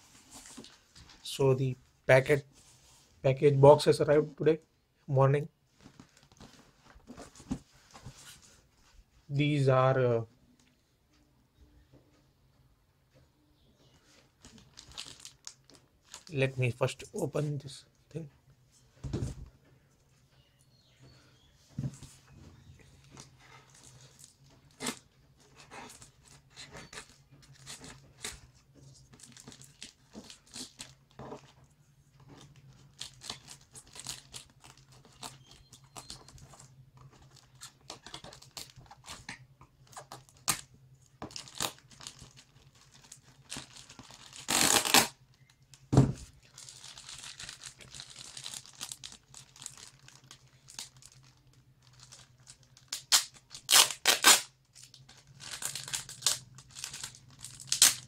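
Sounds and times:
plastic crinkling: 14.3s - 16.4s, 32.2s - 58.0s
packing tape ripping: 43.5s - 45.2s, 52.1s - 58.0s.

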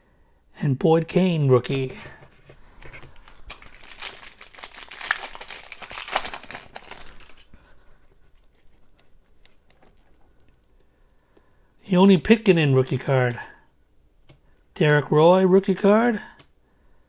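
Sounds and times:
foil wrapper tearing and crinkling: 2.7s - 7.5s.

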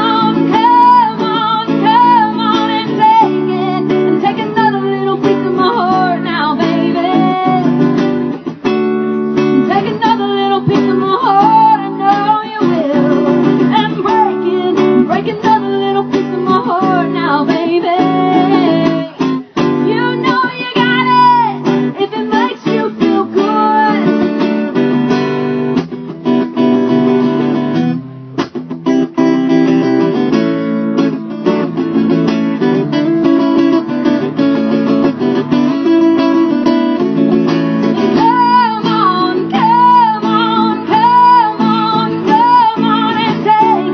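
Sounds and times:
person singing: 0.0s - 8.3s, 9.5s - 24.6s, 38.0s - 43.9s
acoustic guitar strumming: 0.0s - 43.9s.

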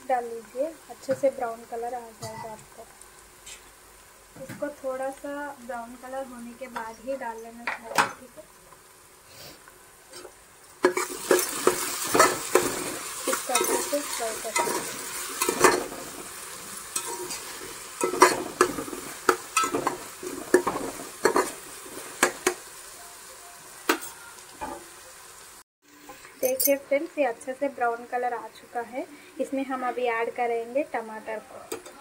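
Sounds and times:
onions sizzling in oil: 0.0s - 32.0s
spoon scraping metal pan: 10.1s - 16.2s, 16.8s - 22.6s.

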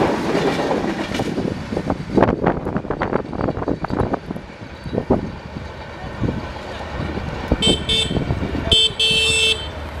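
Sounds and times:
trains rumbling: 0.0s - 10.0s
locomotive horn blasts: 7.6s - 9.8s.

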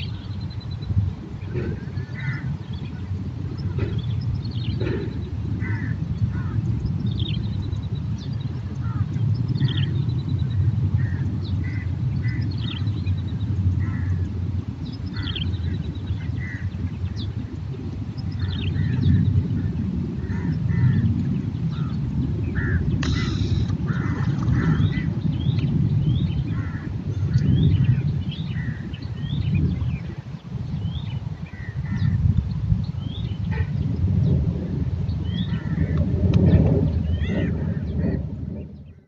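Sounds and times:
bird calls and chirps: 0.0s - 34.4s, 35.1s - 39.0s
low rumble: 0.0s - 39.0s
sharp noisy burst: 23.0s - 23.7s.

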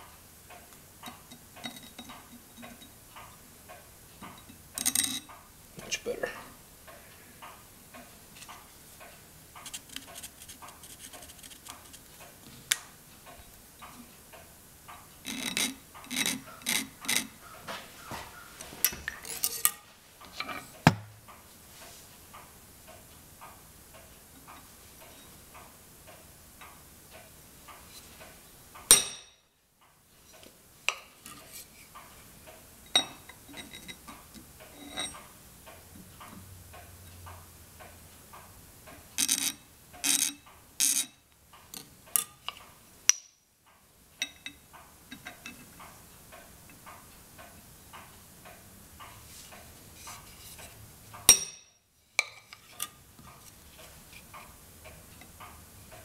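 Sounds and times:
steady soft ticking: 0.0s - 17.6s
hammer tapping center punch: 20.8s - 21.2s.

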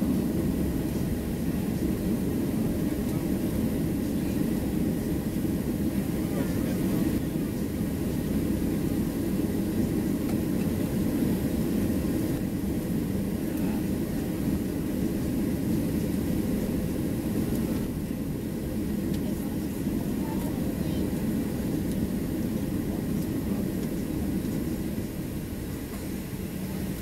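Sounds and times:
aircraft cabin engine rumble: 0.0s - 27.0s.

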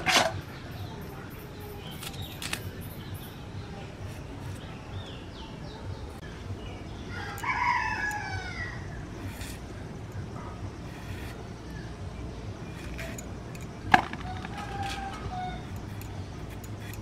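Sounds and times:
rooster crowing: 7.1s - 9.0s, 14.2s - 15.8s.

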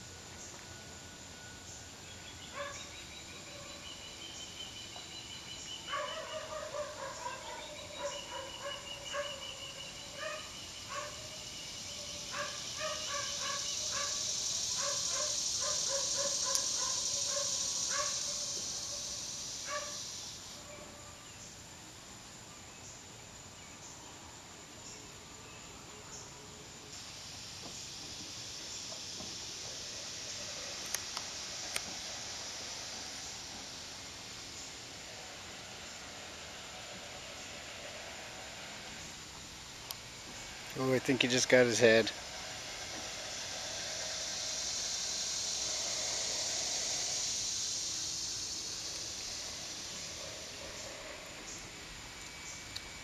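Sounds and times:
steady high hiss: 0.0s - 53.0s
bird calling: 2.1s - 20.9s.

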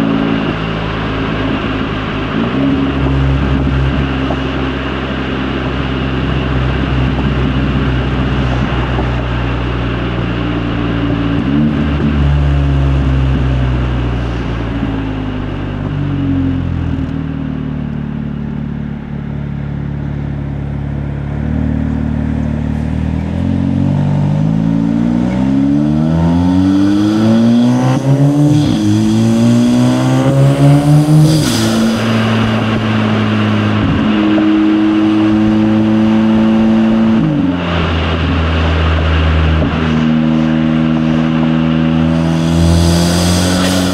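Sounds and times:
car engine accelerating: 0.0s - 43.9s.

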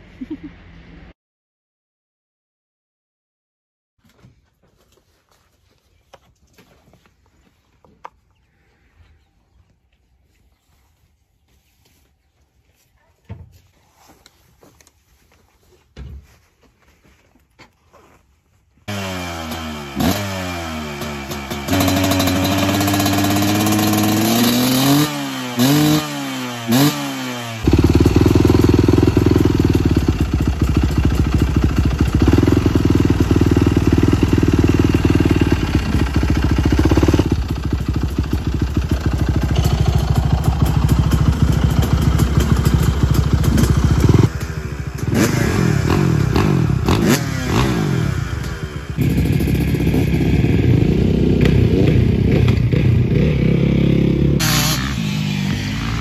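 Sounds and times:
dirt bike engines revving: 18.9s - 56.0s.

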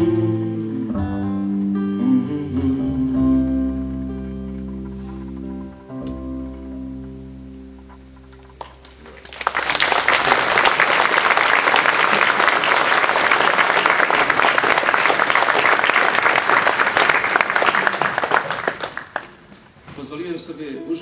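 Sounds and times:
audience applauding: 8.6s - 19.5s
acoustic guitar notes ringing: 20.6s - 21.0s.

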